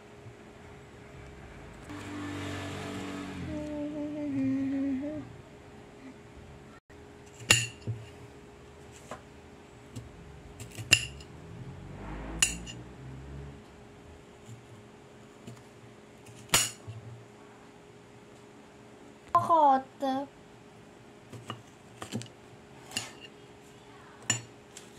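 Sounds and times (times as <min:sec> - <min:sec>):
low hum: 0:00.0 - 0:02.2, 0:08.2 - 0:14.5.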